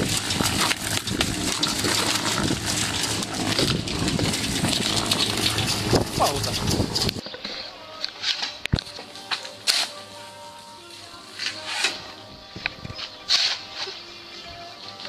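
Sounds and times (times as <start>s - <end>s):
concrete mixer motor hum: 0.0s - 7.2s
mixer drum rattling: 0.0s - 7.2s.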